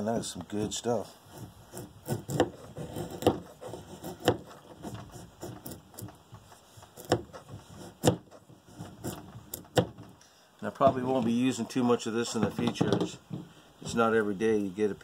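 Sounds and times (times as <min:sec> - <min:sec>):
knife scraping wood: 0:01.1 - 0:10.0.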